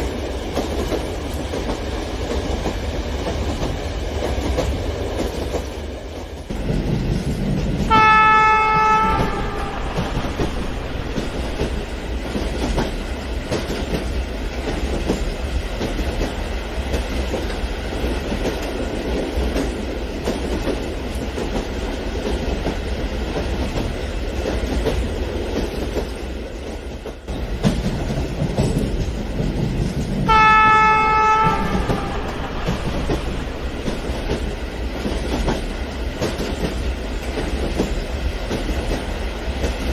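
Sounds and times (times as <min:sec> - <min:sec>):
model train rumble and wheel clatter: 0:00.0 - 0:39.9
single-pitch train horn: 0:07.9 - 0:11.9, 0:30.3 - 0:34.3.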